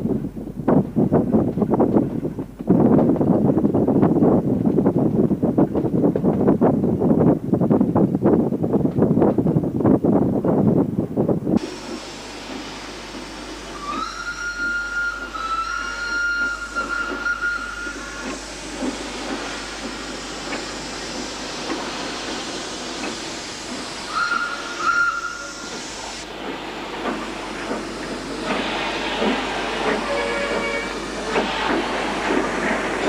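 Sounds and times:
steam locomotive whistle: 11.6s - 26.3s, 27.0s - 32.8s
steam hissing: 11.6s - 33.0s.

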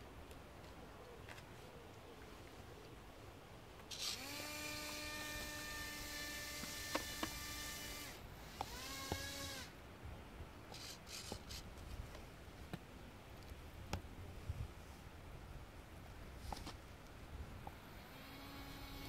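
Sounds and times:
small electric motor whining: 3.9s - 9.7s, 10.7s - 11.6s, 17.8s - 19.0s.

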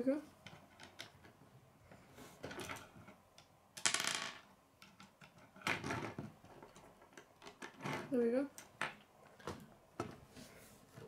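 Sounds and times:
plastic pieces clicking and clattering: 2.4s - 9.7s.

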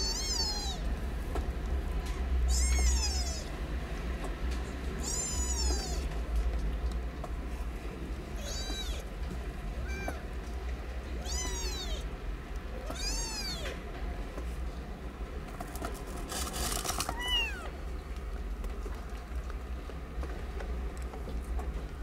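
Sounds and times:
kittens mewing: 0.0s - 0.9s, 2.5s - 3.6s, 5.0s - 6.1s, 8.4s - 9.1s, 9.8s - 10.3s, 11.2s - 12.1s, 12.8s - 13.8s, 17.1s - 17.7s.

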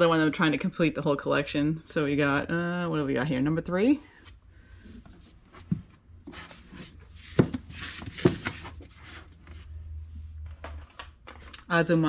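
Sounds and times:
paperback books rustling: 4.2s - 11.7s
books knocking: 5.5s - 9.2s.

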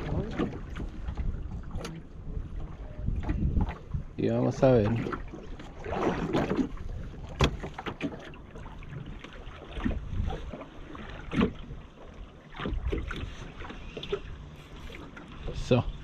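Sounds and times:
water against boat hull: 0.0s - 16.0s.

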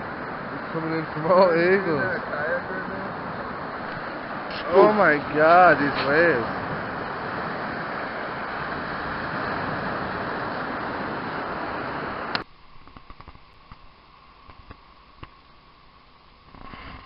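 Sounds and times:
waves breaking on rocky shore: 0.0s - 12.4s.

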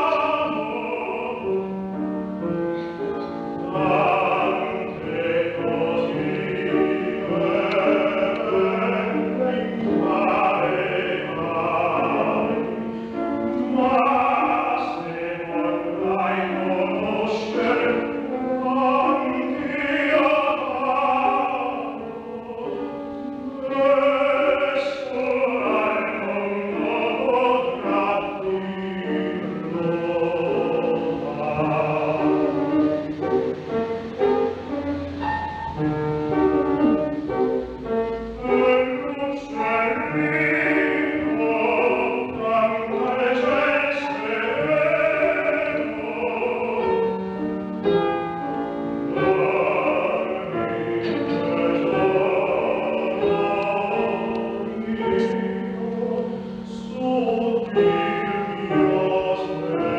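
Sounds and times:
operatic baritone singing: 0.0s - 34.2s, 37.8s - 59.9s.

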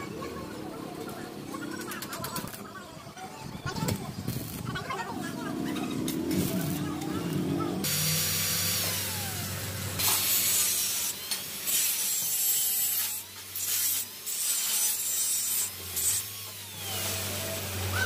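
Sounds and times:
angle grinder grinding steel: 5.7s - 18.0s.

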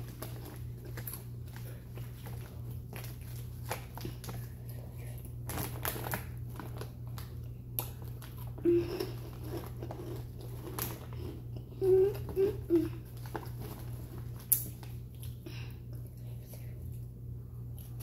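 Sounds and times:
bag crinkling: 0.0s - 4.5s, 5.4s - 7.3s, 7.9s - 11.2s, 12.2s - 15.0s
chewing crunchy chips: 0.0s - 15.4s
hum-like vocal sound: 8.6s - 9.3s, 11.1s - 13.2s.

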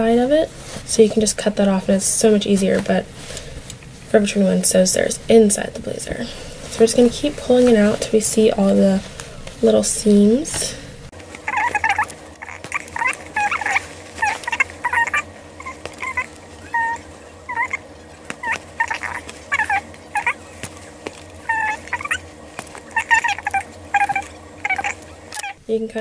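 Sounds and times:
small animal chirping and squeaking: 11.4s - 25.6s.

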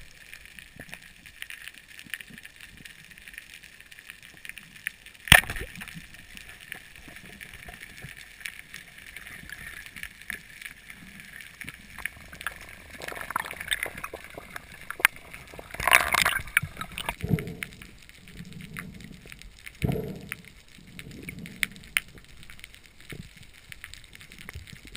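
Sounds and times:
fine underwater crackling: 0.0s - 24.9s
underwater rushing noise: 5.2s - 24.9s
speargun firing underwater: 5.3s - 5.7s.

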